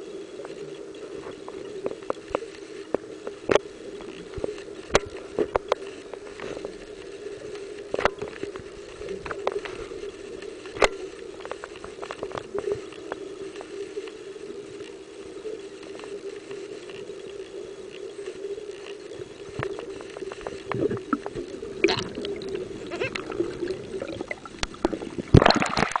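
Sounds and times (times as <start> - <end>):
underwater low hum: 0.0 - 26.0
underwater clicks and taps: 1.3 - 6.7, 7.9 - 9.8, 10.6 - 13.7, 19.2 - 22.4, 23.0 - 26.0.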